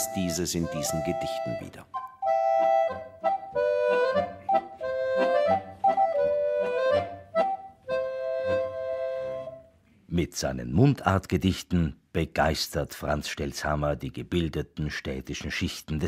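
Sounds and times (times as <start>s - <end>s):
free-reed instrument playing chords: 0.0s - 9.7s.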